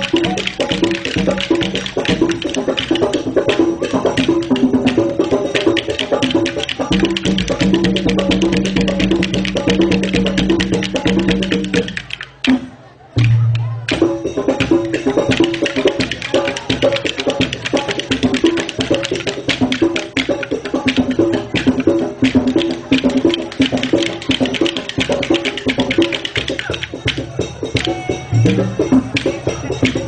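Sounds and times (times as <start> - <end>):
music with fast percussion: 0.0 - 30.0.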